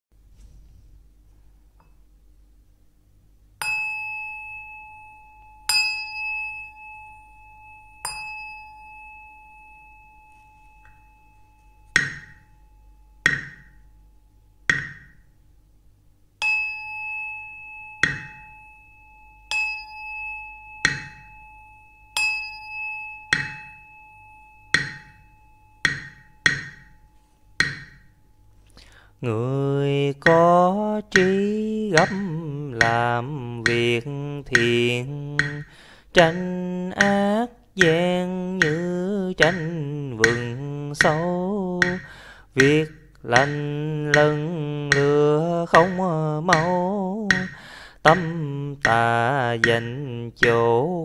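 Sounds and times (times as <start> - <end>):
wooden fish knocks: 13.3 - 13.7, 14.7 - 15.2, 27.6 - 28.0, 35.4 - 35.6, 38.6 - 42.8, 43.4 - 45.2, 45.8 - 48.2
bell ringing: 16.4 - 28.2.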